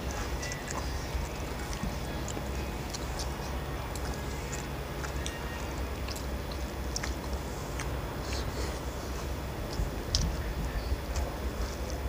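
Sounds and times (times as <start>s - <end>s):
chewing: 0.0s - 12.0s
steady low hum: 0.0s - 12.0s.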